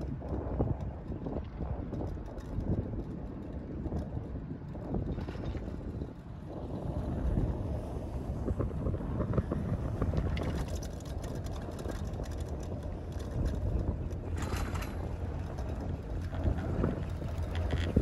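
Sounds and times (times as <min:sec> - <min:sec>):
steady low rumble: 0:00.0 - 0:18.0
wind rushing over microphone: 0:00.0 - 0:18.0
faint clicks: 0:10.2 - 0:18.0.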